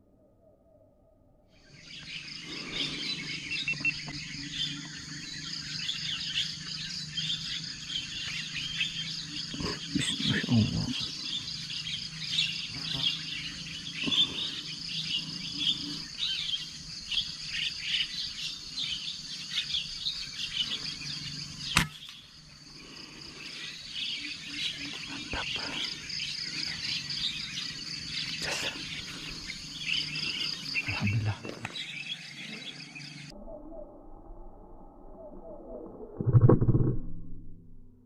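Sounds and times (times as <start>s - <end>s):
birds and insects chirping: 0.0s - 36.1s
air rifle shot: 21.8s - 22.2s.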